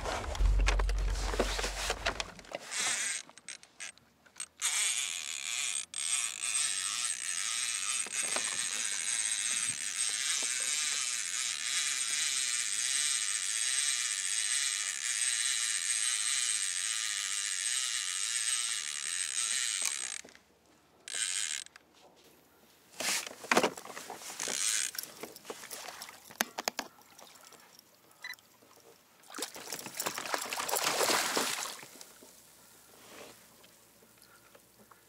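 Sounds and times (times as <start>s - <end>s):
fishing reel buzzing: 0.2s - 20.2s, 21.1s - 21.8s, 24.4s - 25.1s
fish splashing at the surface: 29.3s - 31.9s.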